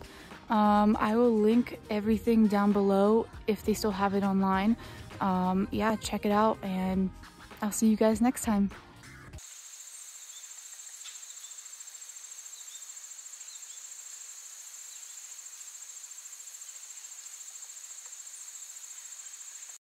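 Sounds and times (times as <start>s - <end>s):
insects trilling: 9.4s - 19.8s.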